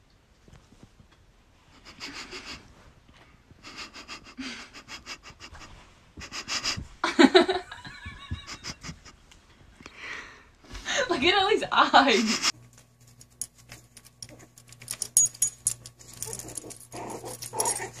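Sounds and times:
dog whining: 0:16.1 - 0:18.0.

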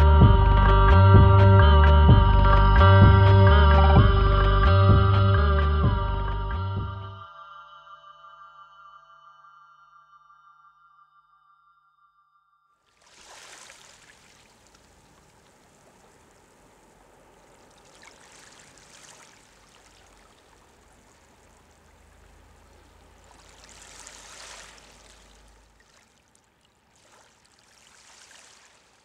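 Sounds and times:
sea water lapping: 0:12.9 - 0:29.0.

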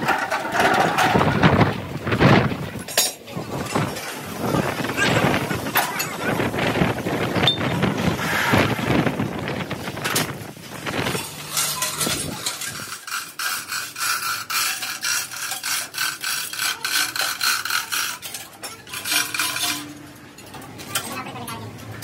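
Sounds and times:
wind gusting on microphone: 0:00.0 - 0:13.0
chain hoist rattling: 0:11.0 - 0:20.5.

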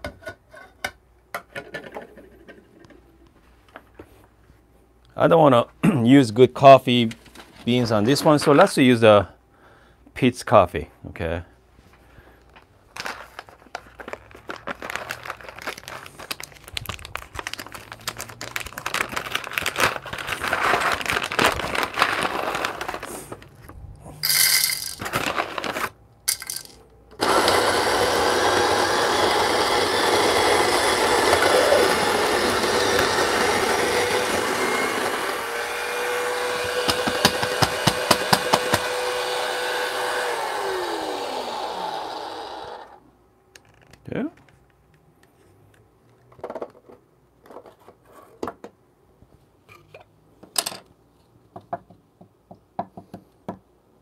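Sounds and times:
beans crackling in burrs: 0:12.4 - 0:23.6
coffee beans rattling: 0:24.2 - 0:26.8
coffee grinder motor grinding: 0:26.3 - 0:43.0.

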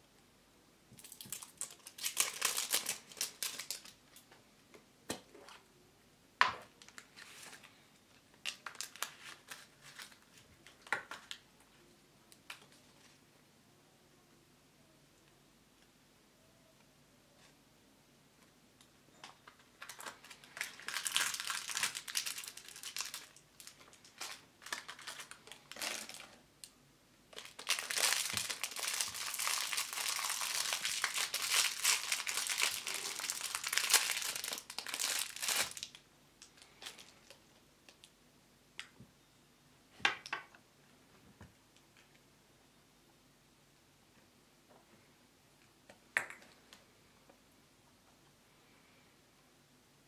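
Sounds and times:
plastic wrapper crinkling and tearing: 0:01.0 - 0:04.2, 0:06.8 - 0:11.5, 0:19.4 - 0:26.4, 0:27.3 - 0:38.1.

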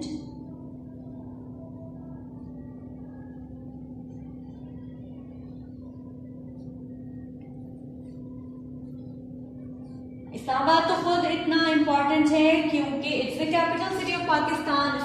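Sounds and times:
low rumble: 0:00.0 - 0:10.6
steady low hum: 0:00.0 - 0:15.0.

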